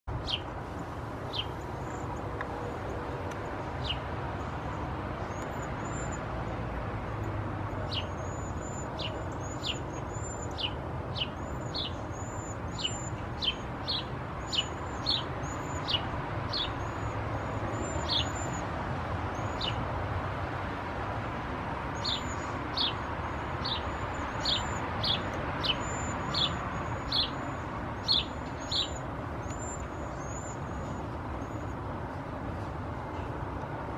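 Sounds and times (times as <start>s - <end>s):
high-pitched bird calls: 0.1s - 0.5s, 1.3s - 2.3s, 7.8s - 18.7s, 19.3s - 19.8s, 22.0s - 31.7s.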